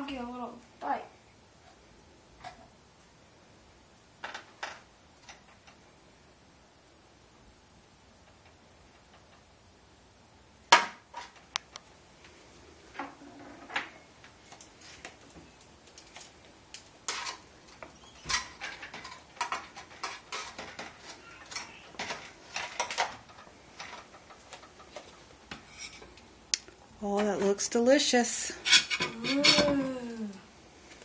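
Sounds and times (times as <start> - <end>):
utensils scraping metal baking pan: 17.1 - 17.4, 18.0 - 23.0, 25.5 - 26.1, 28.4 - 29.9.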